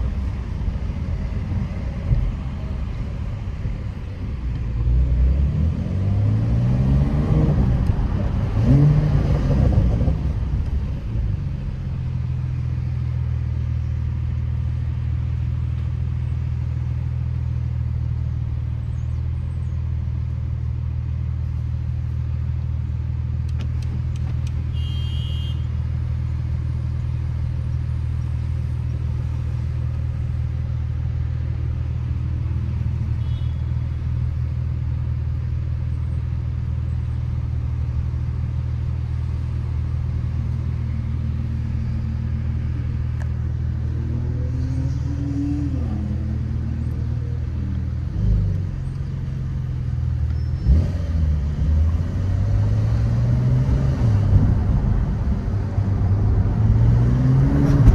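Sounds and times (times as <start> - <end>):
car engine idling: 10.3 - 45.1
faint high chirp: 50.3 - 50.7.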